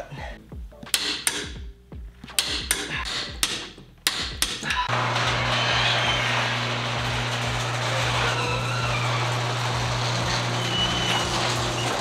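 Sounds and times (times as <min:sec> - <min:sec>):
garage door drive rattling: 0:04.2 - 0:12.0
garage door motor humming: 0:04.7 - 0:12.0.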